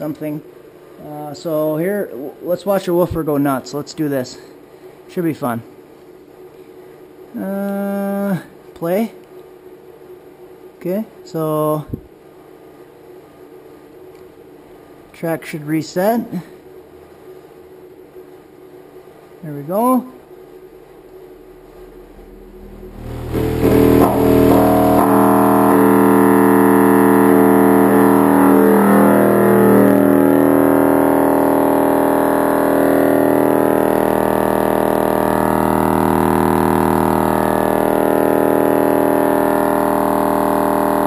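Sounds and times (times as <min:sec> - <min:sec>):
buzzy bass test tone: 0:20.0 - 0:41.0.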